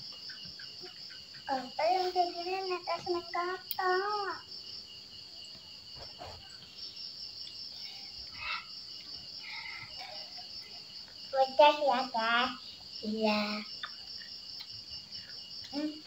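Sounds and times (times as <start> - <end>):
crickets chirring: 0.0 - 16.0
child's voice: 1.5 - 4.5, 11.3 - 13.8, 15.7 - 16.0.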